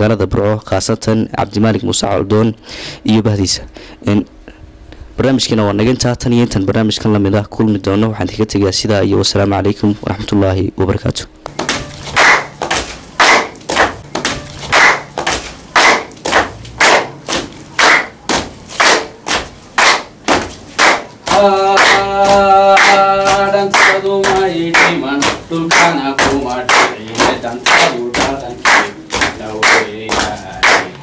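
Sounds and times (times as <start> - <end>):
rhythmic hand clapping: 11.4 - 31.0.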